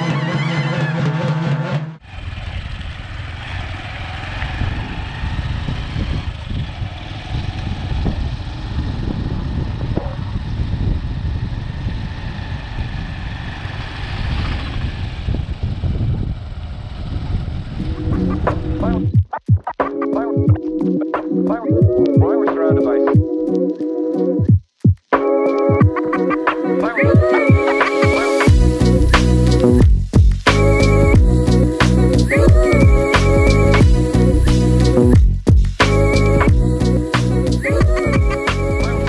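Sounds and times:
motorcycle rumbling: 0.0s - 19.2s, 25.8s - 39.0s
festival band music: 25.1s - 39.0s.

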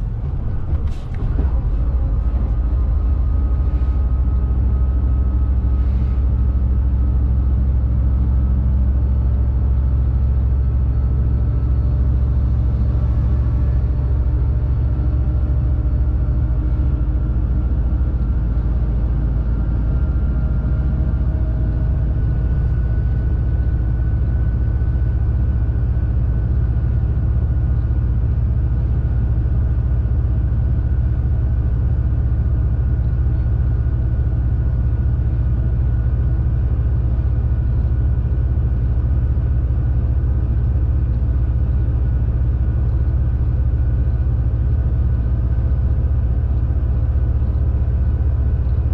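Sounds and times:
road noise: 0.0s - 48.9s
truck diesel engine rumbling: 0.0s - 48.9s.

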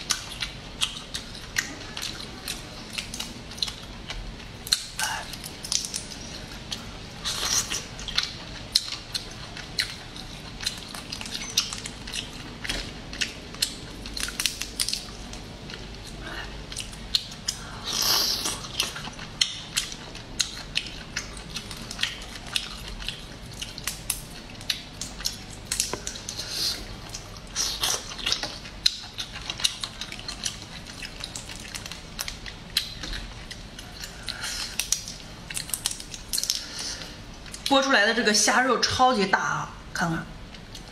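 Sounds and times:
wet chewing: 0.0s - 37.8s
crayfish shells cracking: 7.2s - 15.4s, 27.1s - 37.0s.

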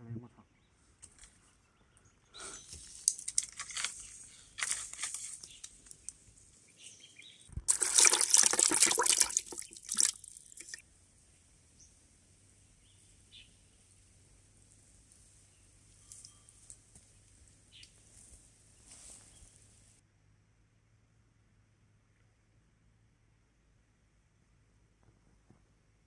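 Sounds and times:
fish splashing in a bucket: 7.6s - 10.8s.

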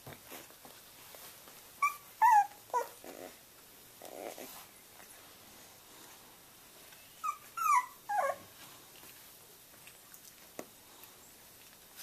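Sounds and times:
puppy whimpering: 1.8s - 3.4s, 4.0s - 4.6s, 7.1s - 8.5s.

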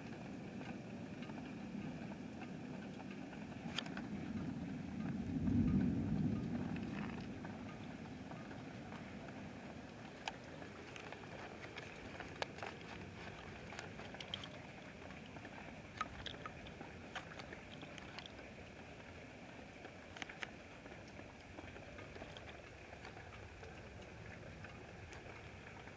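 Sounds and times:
raindrops ticking: 0.0s - 25.9s.

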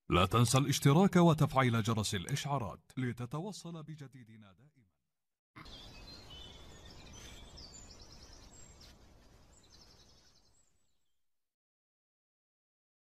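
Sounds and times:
steady nature noise: 5.6s - 11.0s
bird chirps: 5.6s - 11.2s.

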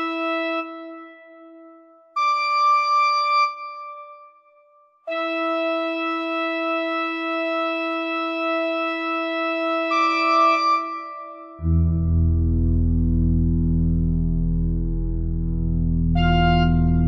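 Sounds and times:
organ sustained chords: 11.6s - 17.0s.

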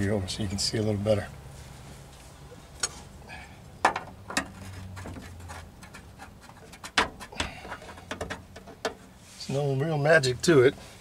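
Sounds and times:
metal rubbing: 4.2s - 9.7s.

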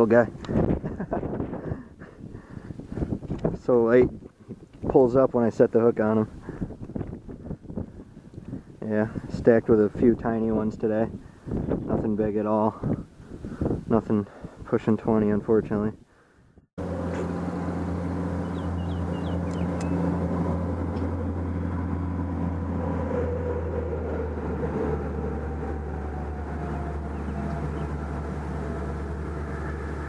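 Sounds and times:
low engine rumble with hum: 16.8s - 30.0s.

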